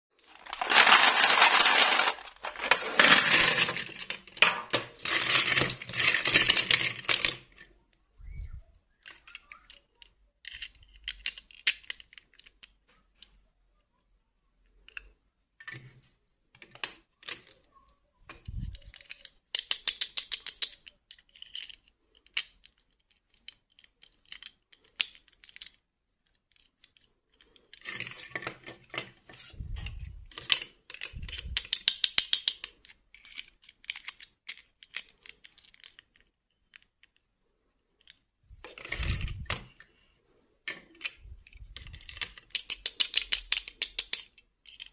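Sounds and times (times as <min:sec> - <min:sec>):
plastic dolls rattling on metal tray: 0:00.2 - 0:07.6, 0:38.6 - 0:39.8.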